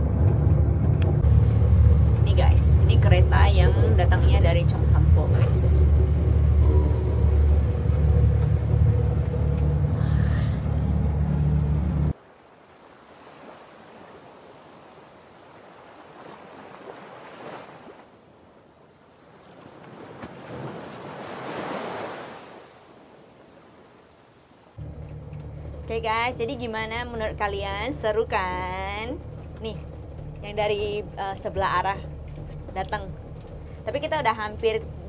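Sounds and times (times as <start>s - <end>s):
rail car rumbling: 0.0s - 12.2s, 24.8s - 35.0s
sea waves washing over rocks: 19.1s - 24.4s.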